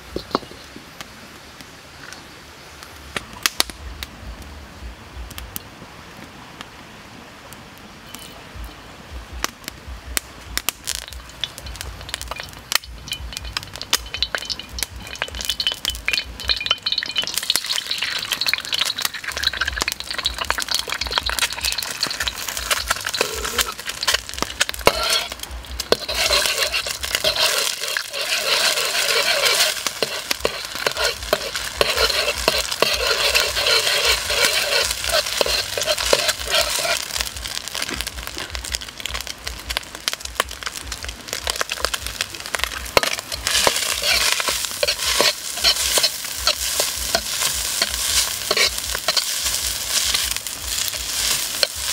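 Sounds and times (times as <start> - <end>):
egg sizzling in hot oil: 10.8 - 51.9
metal ladle scraping pan: 12.0 - 37.2, 43.0 - 51.9.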